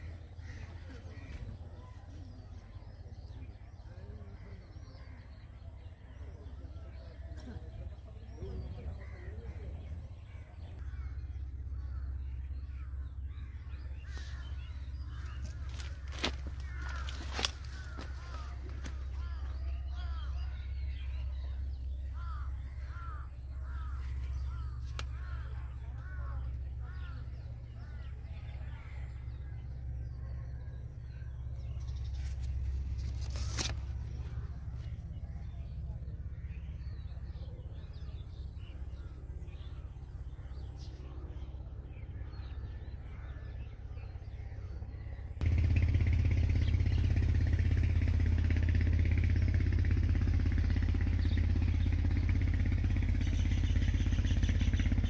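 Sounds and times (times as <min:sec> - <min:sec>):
crows cawing: 0:00.0 - 0:01.8, 0:08.8 - 0:21.1, 0:22.1 - 0:31.3
steady low rumble: 0:00.0 - 0:55.0
loud rumbling noise: 0:45.3 - 0:55.0.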